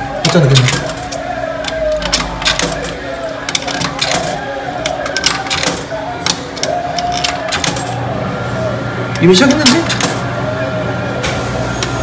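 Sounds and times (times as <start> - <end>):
coins clinking in coin slot: 0.2 - 8.0, 9.5 - 10.3.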